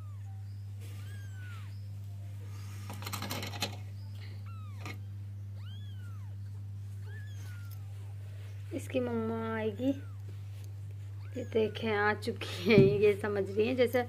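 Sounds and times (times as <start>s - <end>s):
kitten mewing: 0.0s - 1.8s, 5.6s - 6.4s, 7.0s - 7.9s, 9.6s - 10.3s, 11.2s - 12.7s
low hum: 0.0s - 14.0s.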